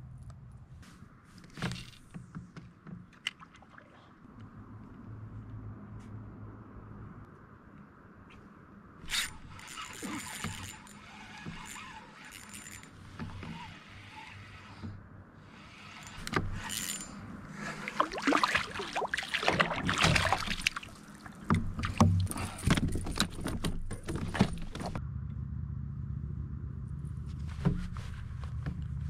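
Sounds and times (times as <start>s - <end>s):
clicks and knocks against hull: 1.4s - 3.8s, 18.0s - 25.0s
low hum: 24.9s - 29.0s.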